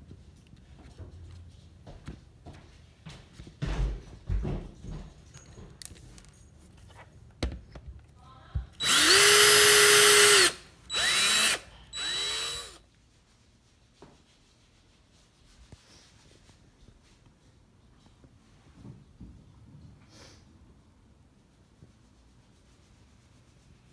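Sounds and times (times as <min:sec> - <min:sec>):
power drill boring into wood: 0:08.8 - 0:12.8.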